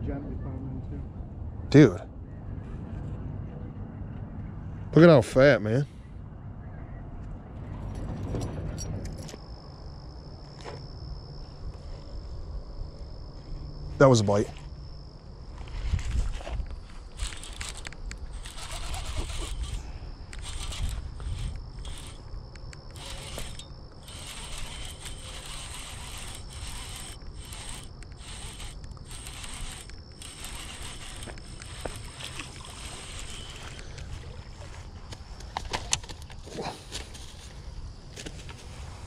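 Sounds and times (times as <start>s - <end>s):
wind rumble on microphone: 6.0s - 9.4s, 15.5s - 27.8s
high insect buzz: 9.4s - 34.8s
fishing reel gears whirring: 17.1s - 34.3s.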